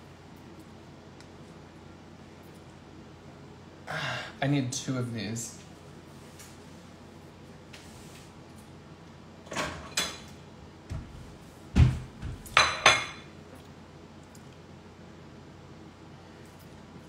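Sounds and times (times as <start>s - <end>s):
dishes clattering: 9.5s - 10.3s, 12.5s - 13.3s.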